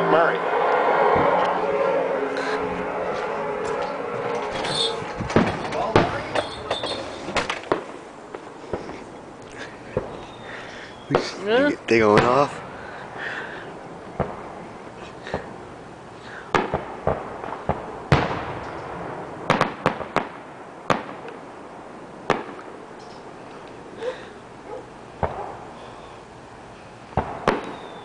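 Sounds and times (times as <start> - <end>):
fireworks bangs and pops: 4.3 - 10.4, 11.1 - 12.6, 14.1 - 15.6, 16.5 - 21.4, 22.2 - 22.8, 25.2 - 25.7, 27.1 - 28.0.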